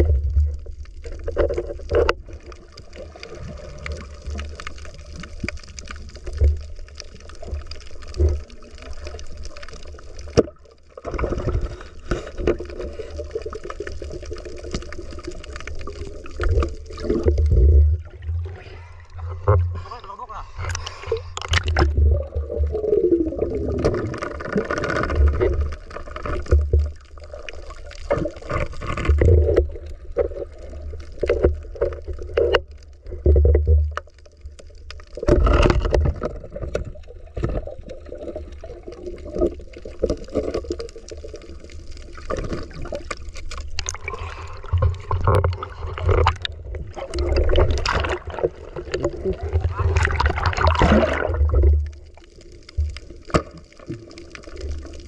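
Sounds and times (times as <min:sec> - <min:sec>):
bubbles: 0:00.0 - 0:19.9, 0:20.5 - 0:55.0
muffled underwater rumble: 0:00.0 - 0:55.0
water splashing and gurgling: 0:00.0 - 0:55.0.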